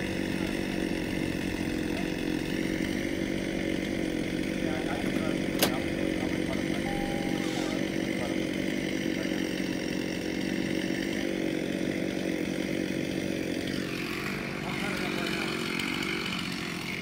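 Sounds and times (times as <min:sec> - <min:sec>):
chainsaw engine running: 0:00.0 - 0:17.0.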